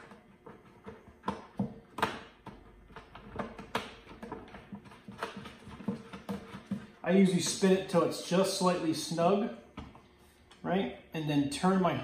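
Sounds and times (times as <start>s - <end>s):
clicks and knocks on plastic bucket: 0.0s - 7.0s.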